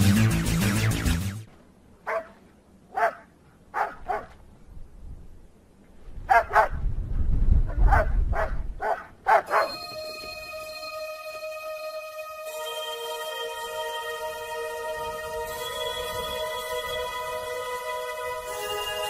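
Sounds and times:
background music: 0.0 - 1.5, 9.5 - 19.0
dog barking: 2.0 - 4.3, 6.3 - 6.8, 7.7 - 9.8.

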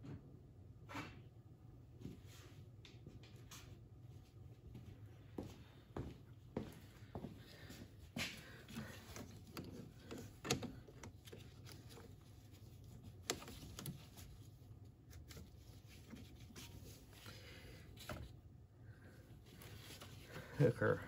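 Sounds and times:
gloved hands handling hoses: 7.1 - 20.9.

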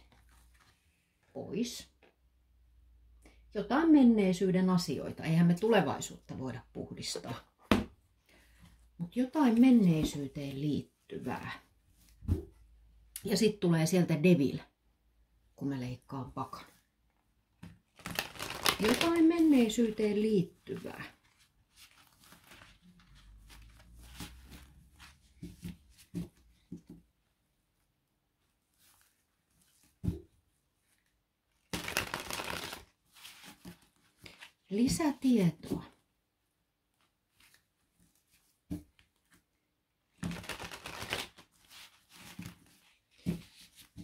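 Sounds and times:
cards shuffling: 18.0 - 19.5, 31.7 - 34.5, 40.2 - 43.8.

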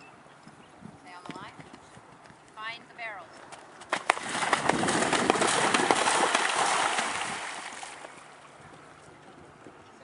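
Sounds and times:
hooves splashing in water: 3.9 - 9.0.

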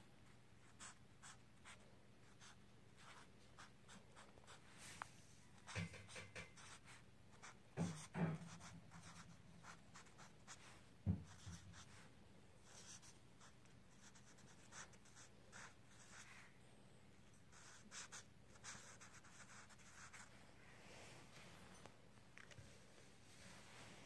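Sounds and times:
marker scratching on paper: 0.7 - 4.6, 5.6 - 12.0, 12.6 - 16.3, 17.5 - 20.3.

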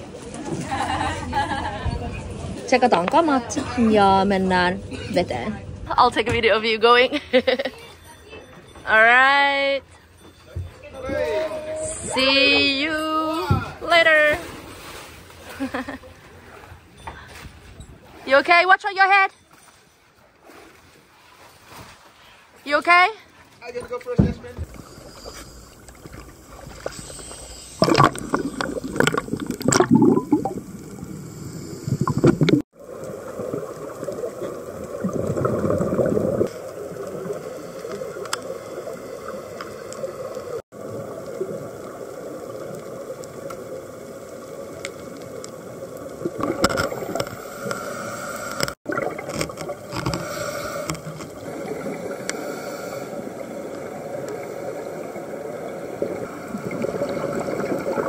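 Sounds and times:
water sloshing and splashing: 12.3 - 22.7, 23.3 - 58.0
divers breathing bubbles: 24.7 - 41.5, 46.1 - 58.0
underwater gurgling: 24.7 - 58.0.

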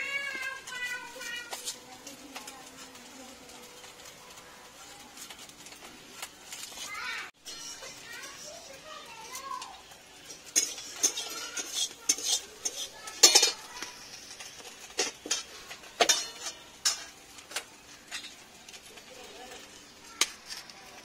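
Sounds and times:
light sizzle: 0.0 - 21.0
metal spatula scraping a wok: 0.0 - 21.0.

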